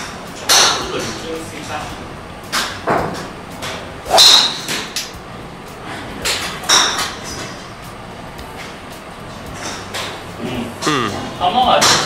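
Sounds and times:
golf club striking ball: 0:02.5 - 0:05.2, 0:06.2 - 0:07.6.

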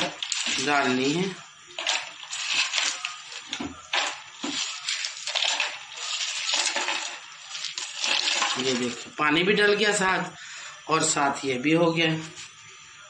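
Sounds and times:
ice cubes clinking in a jar: 0:01.8 - 0:09.0.

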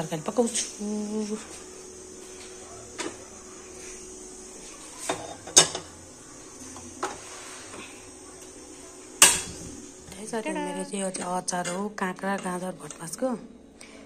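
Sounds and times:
dishes and utensils clinking: 0:05.0 - 0:06.0, 0:09.2 - 0:09.7.

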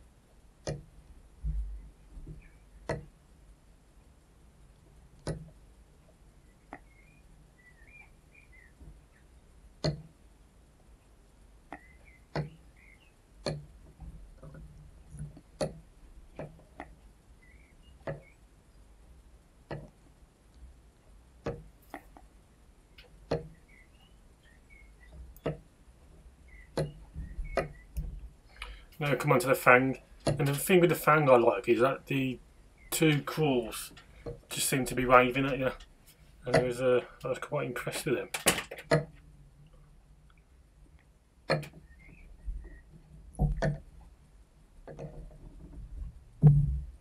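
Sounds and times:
low steady hum: 0:00.0 - 0:47.0
faint high chirps: 0:06.4 - 0:09.2, 0:11.8 - 0:13.2, 0:26.4 - 0:28.0
sharp clicks: 0:36.5 - 0:39.1.

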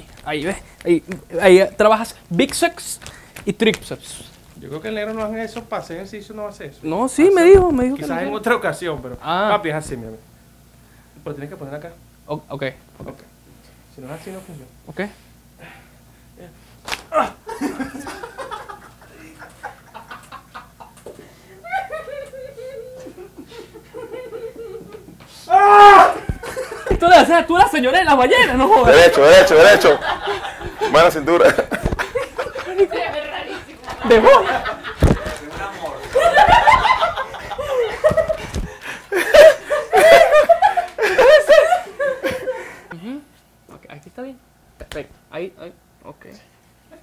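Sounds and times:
men laughing quietly: 0:17.1 - 0:25.4, 0:26.1 - 0:27.0, 0:29.6 - 0:43.0.

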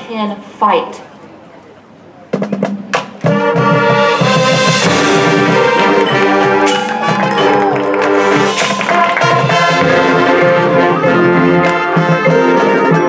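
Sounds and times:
marching band playing: 0:02.3 - 0:13.0
sharp drum hits: 0:02.7 - 0:05.8.

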